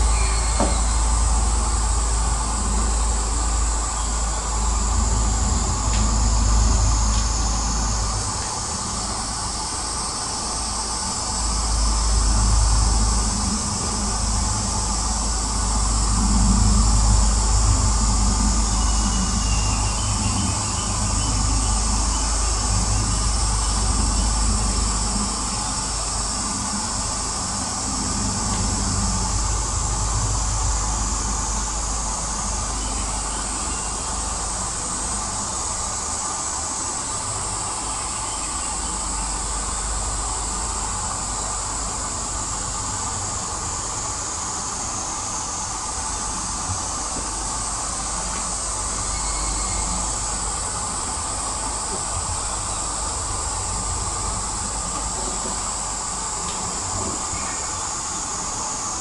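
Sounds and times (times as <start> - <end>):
distant turboprop aircraft rumble: 0.0 - 38.0
high-pitched hiss: 0.0 - 59.0.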